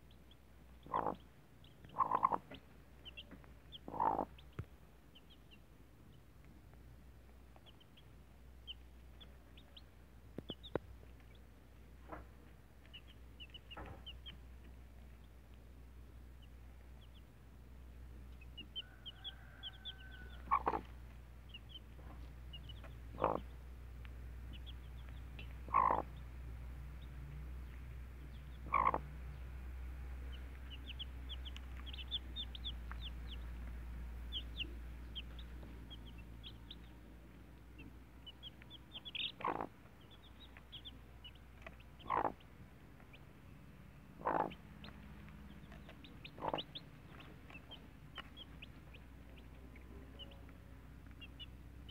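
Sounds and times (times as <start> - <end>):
chicks peeping: 0.0 - 51.9
hen clucking: 0.8 - 4.6, 18.3 - 23.7, 24.4 - 26.3, 28.2 - 29.4, 30.2 - 43.3, 44.1 - 51.9.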